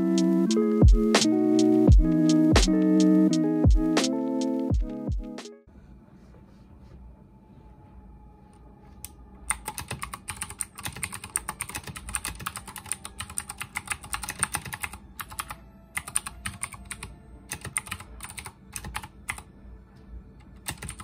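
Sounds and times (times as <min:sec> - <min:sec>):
mechanical keyboard typing: 0:09.5 - 0:19.5, 0:20.6 - 0:21.0.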